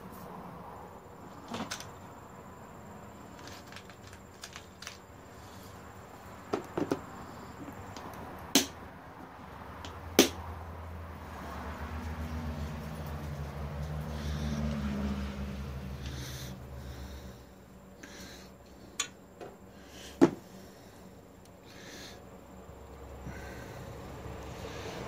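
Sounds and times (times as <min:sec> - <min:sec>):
hand tools clicking and tapping: 0:06.5 - 0:08.8, 0:19.0 - 0:19.5.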